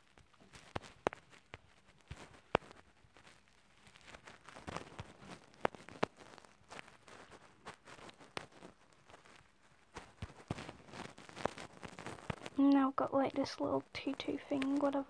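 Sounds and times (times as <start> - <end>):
soft rubbing on screen: 0.0 - 15.0.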